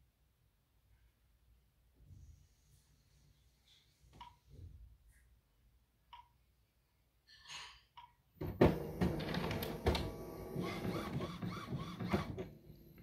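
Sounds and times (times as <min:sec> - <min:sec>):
printer mechanism clattering and whirring: 0:08.4 - 0:13.0.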